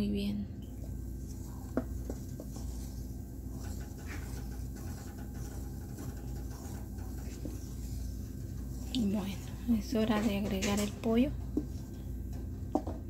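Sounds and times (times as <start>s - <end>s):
wooden spoon stirring thick sauce: 0.7s - 13.0s.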